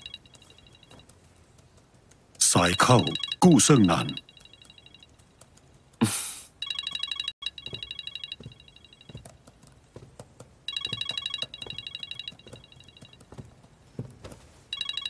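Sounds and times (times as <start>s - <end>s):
mobile phone ringtone trilling: 0.0s - 1.0s, 2.8s - 5.1s, 6.6s - 9.2s, 10.7s - 13.2s, 14.7s - 15.0s.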